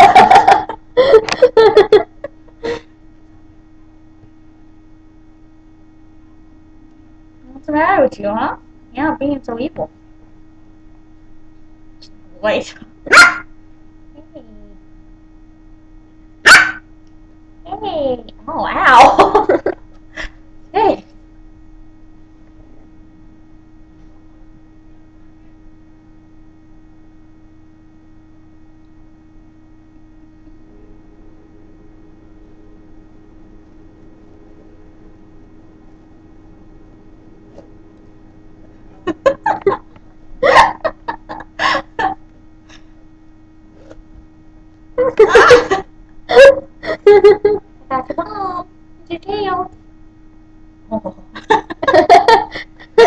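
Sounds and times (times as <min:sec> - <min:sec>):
people giggling: 0:00.0 - 0:02.8, 0:19.0 - 0:19.8, 0:39.0 - 0:42.2, 0:45.0 - 0:47.6, 0:51.3 - 0:53.0
low electrical hum: 0:00.0 - 0:53.0.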